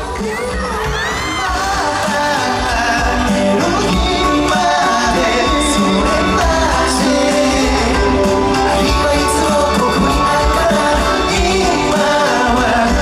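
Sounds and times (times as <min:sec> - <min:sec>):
loud band playing: 0:00.0 - 0:13.0
men singing live pop song: 0:00.0 - 0:13.0.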